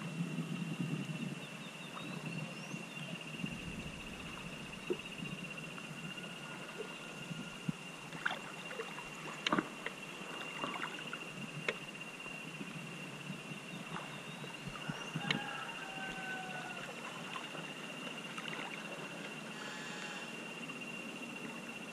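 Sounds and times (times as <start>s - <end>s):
river water lapping and trickling: 1.7s - 21.9s
small splashes and drips: 8.1s - 11.8s.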